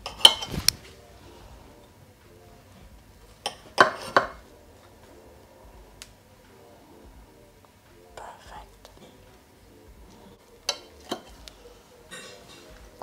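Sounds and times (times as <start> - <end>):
utensils clinking against crockery: 0.0 - 0.9, 3.4 - 4.5, 10.2 - 13.0
quiet background music: 0.0 - 13.0.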